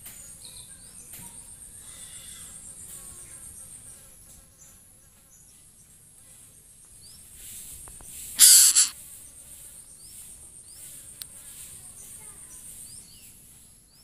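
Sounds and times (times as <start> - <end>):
insects trilling: 0.4 - 4.4, 7.3 - 13.8
hissing rustle: 7.2 - 9.0.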